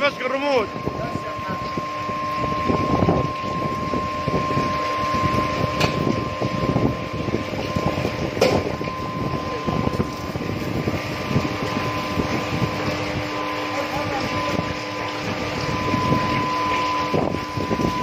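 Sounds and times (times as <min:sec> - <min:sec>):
furnace high-pitched whine: 0:00.0 - 0:18.0
molten metal pouring: 0:00.0 - 0:18.0.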